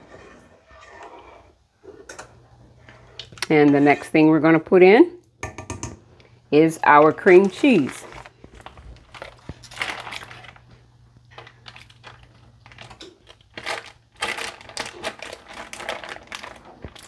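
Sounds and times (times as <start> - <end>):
plastic bag crinkling: 7.2 - 17.0.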